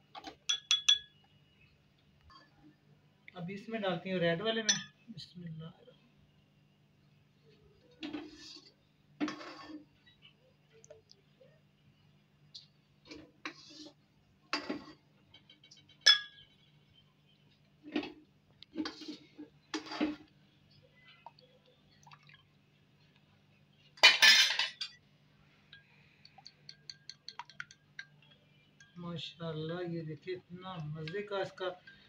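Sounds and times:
spoon clattering: 0.4s - 1.2s, 16.0s - 16.4s, 25.8s - 29.0s
spoon clinking against glass bowl: 0.4s - 1.2s, 4.6s - 5.0s, 16.0s - 16.4s, 25.8s - 29.0s
spoon tapping while stirring: 0.4s - 1.2s, 25.8s - 29.0s.

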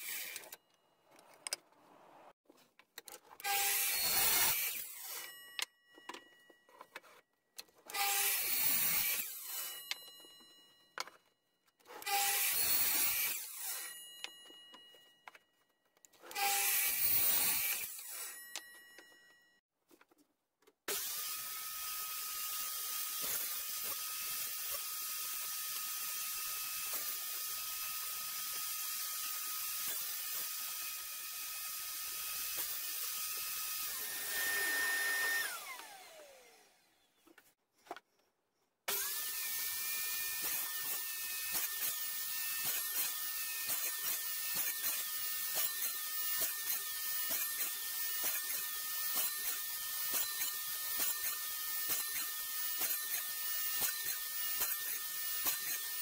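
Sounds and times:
saw winding down whine: 0.0s - 0.6s, 20.9s - 37.0s
table saw cutting wood: 0.0s - 0.6s, 3.4s - 5.4s, 7.8s - 10.1s, 11.9s - 14.1s, 16.2s - 18.4s, 20.9s - 37.2s, 38.9s - 56.0s.

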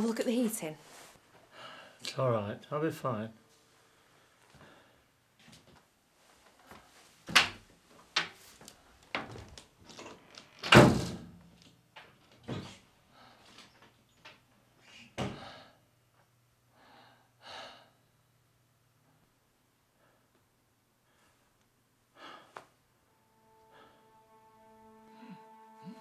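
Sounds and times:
door opening and shutting: 9.9s - 11.3s.

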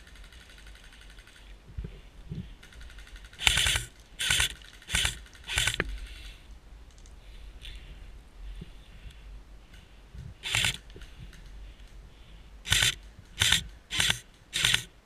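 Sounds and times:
airsoft rifle bursts: 2.6s - 6.3s, 10.4s - 10.9s, 12.7s - 14.9s.

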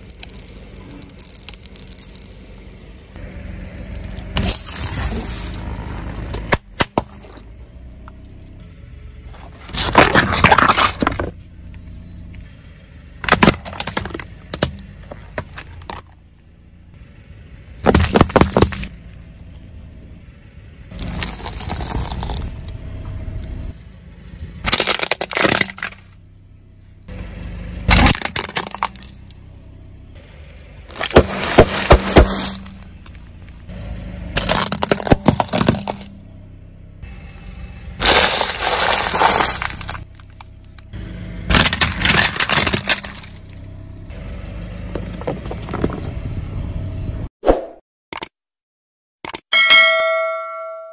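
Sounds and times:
tyre crushing plastic: 0.0s - 2.8s, 17.8s - 19.0s, 24.7s - 26.1s, 30.9s - 32.9s, 34.4s - 36.1s, 38.0s - 40.5s, 41.5s - 43.6s.

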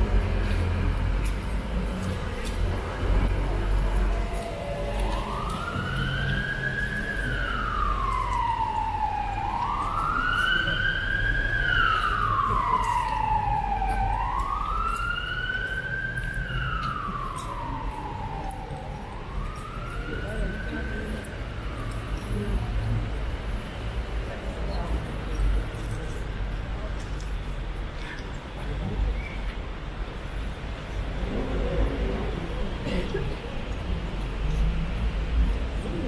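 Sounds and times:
emergency vehicle siren wailing: 0.0s - 25.9s.

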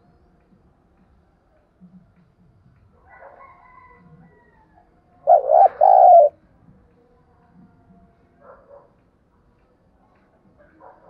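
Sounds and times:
dove cooing: 5.3s - 6.4s.

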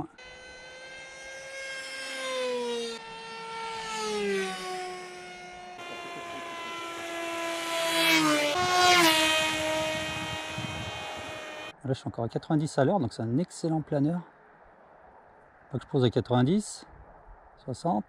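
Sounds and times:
electric motor buzzing whine: 0.0s - 11.7s.

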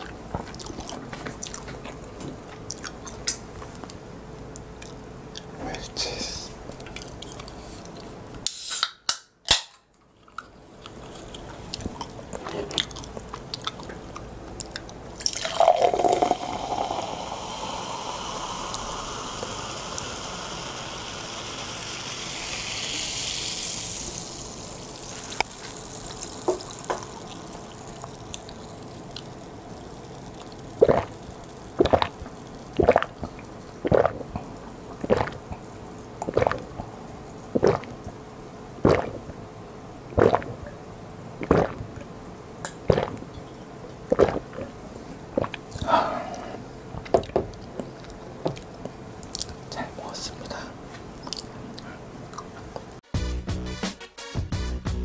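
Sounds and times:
soda can cracked open: 8.4s - 9.8s
person gulping: 10.9s - 20.1s, 30.2s - 36.9s, 37.5s - 38.2s, 38.8s - 39.4s, 40.1s - 40.8s, 41.4s - 43.4s, 44.0s - 49.7s, 51.2s - 53.0s
fizzy soda pouring and hissing: 15.1s - 36.8s.

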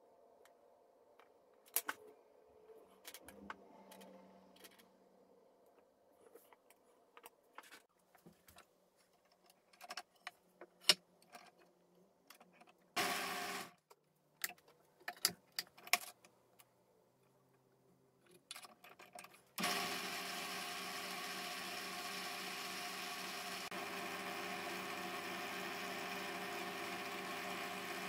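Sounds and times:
clicks of handling wooden parts: 6.2s - 12.9s, 13.8s - 17.6s, 18.2s - 19.6s
drill press running: 13.0s - 13.7s, 19.6s - 28.0s.

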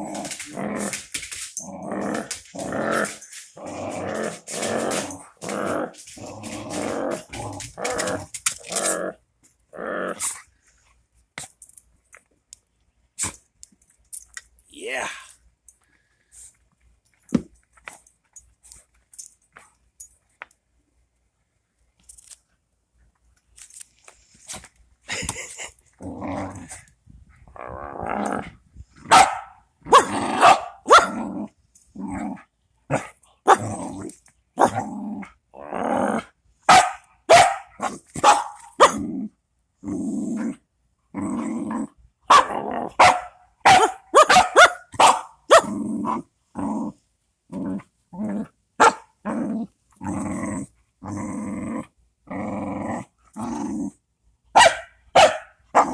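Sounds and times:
dog growling: 0.0s - 10.3s, 25.1s - 26.9s, 27.5s - 28.6s, 29.9s - 36.3s, 38.9s - 43.0s, 49.2s - 54.0s
dog barking sharply: 29.1s - 31.2s, 36.7s - 39.0s, 42.3s - 45.7s, 54.6s - 55.5s.

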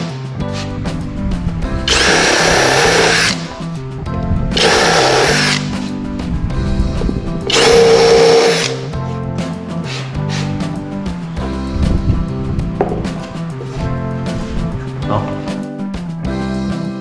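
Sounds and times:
background music: 0.0s - 17.0s
electric drill motor whine: 1.9s - 3.5s, 4.6s - 5.7s, 7.5s - 8.9s.

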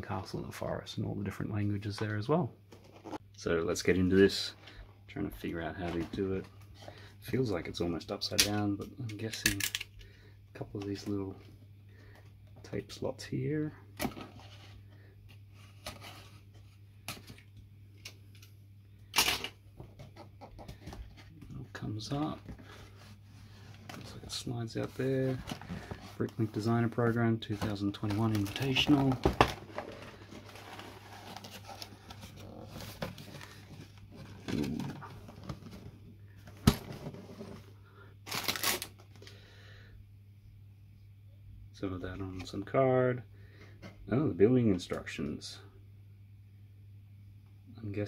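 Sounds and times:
cardboard box scuffling: 28.2s - 35.7s
tape crackle: 38.2s - 39.3s
plastic bags crinkling: 38.3s - 39.0s.

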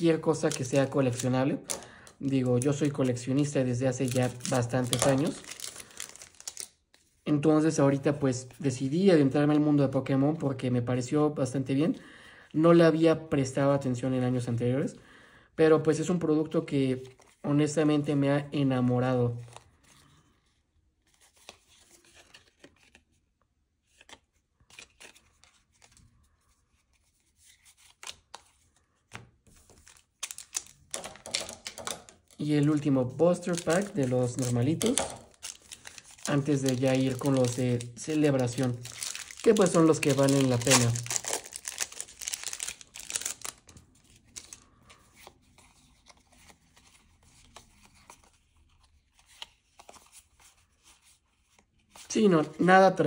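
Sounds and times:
rustling foil wrappers and cards: 0.0s - 7.1s, 23.9s - 50.7s.

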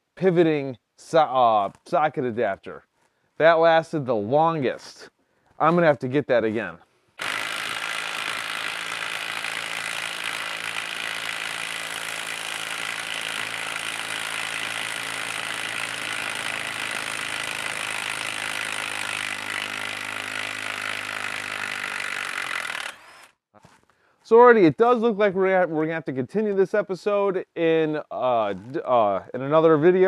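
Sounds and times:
impact driver hammering: 7.2s - 23.2s.

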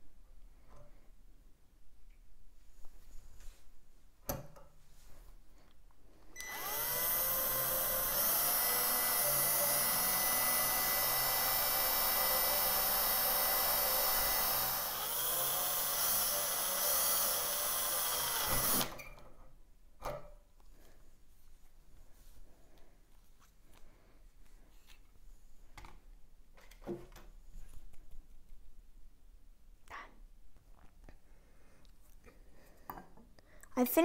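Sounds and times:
cordless drill boring into metal: 6.4s - 19.1s.

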